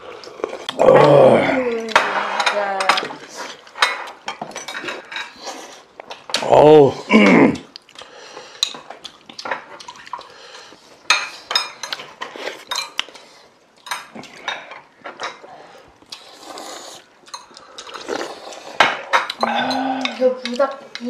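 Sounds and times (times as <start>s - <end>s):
utensils clinking against dishes: 1.6s - 6.4s, 11.1s - 13.2s, 17.2s - 21.0s.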